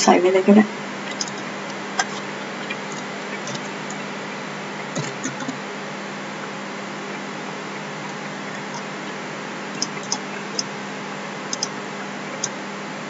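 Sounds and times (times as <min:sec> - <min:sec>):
background hiss and hum: 0:00.0 - 0:13.0
keyboard and mouse clicks: 0:01.1 - 0:01.4, 0:04.9 - 0:05.6, 0:09.8 - 0:10.7, 0:11.5 - 0:11.7.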